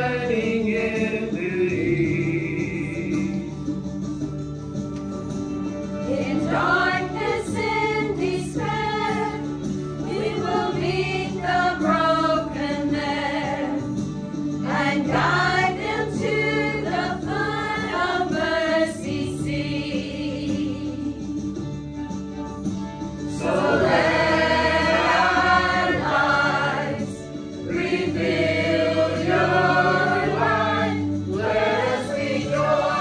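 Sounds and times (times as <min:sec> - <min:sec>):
church choir singing gospel: 0:00.0 - 0:03.4, 0:06.0 - 0:21.1, 0:23.3 - 0:33.0
instrumental accompaniment: 0:00.0 - 0:33.0.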